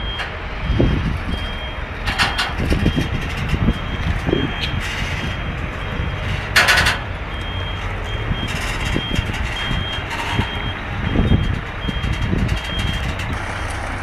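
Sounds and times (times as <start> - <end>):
diesel engine running: 0.0 - 14.0
truck reversing alarm beeping: 0.0 - 14.0.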